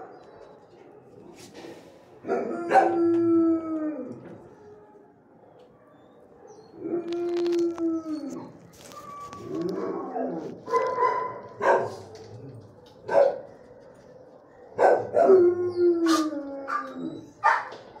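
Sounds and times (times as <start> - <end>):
dogs barking: 2.2 - 3.0, 9.7 - 18.0
dogs howling: 2.2 - 18.0.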